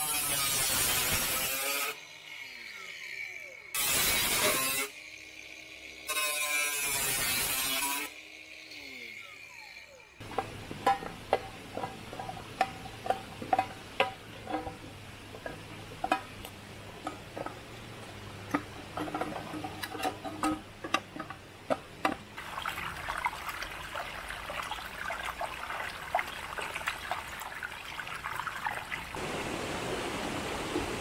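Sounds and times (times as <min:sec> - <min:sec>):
angle grinder cutting metal: 0:00.0 - 0:14.8.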